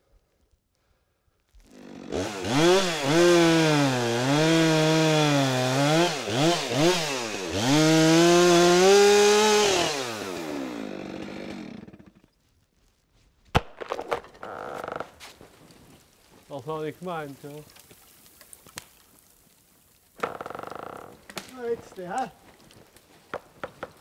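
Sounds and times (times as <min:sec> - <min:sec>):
chainsaw cutting tree: 0:01.6 - 0:12.3, 0:20.2 - 0:24.0.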